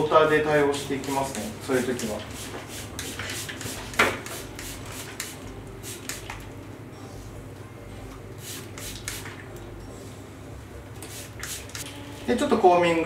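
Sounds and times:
spray bottle hissing sprays: 2.3s - 6.4s, 8.4s - 9.4s, 11.0s - 11.8s.

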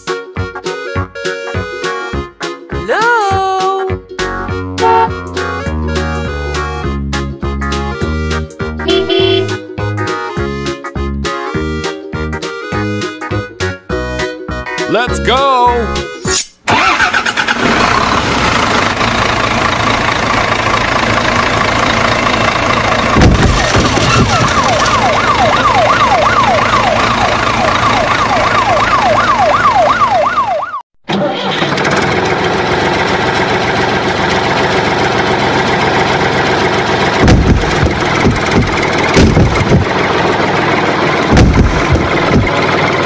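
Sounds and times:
truck engine running: 4.1s - 10.2s, 16.7s - 30.5s, 31.2s - 43.0s
siren sweeping: 23.6s - 30.8s.

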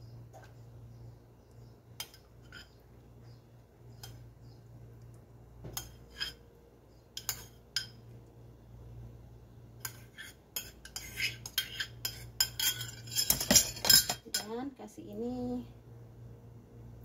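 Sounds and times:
faint low hum: 0.0s - 17.0s
utensil clinking on ceramic bowl: 10.6s - 14.6s.

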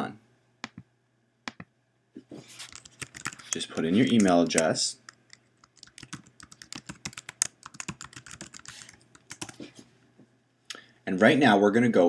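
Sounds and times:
keyboard key clicks: 2.8s - 8.7s.

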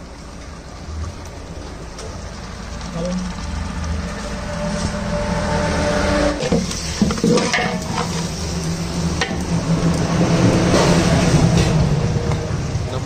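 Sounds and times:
food sizzling: 0.0s - 13.0s
metal spatula scraping a pot: 4.7s - 8.5s.

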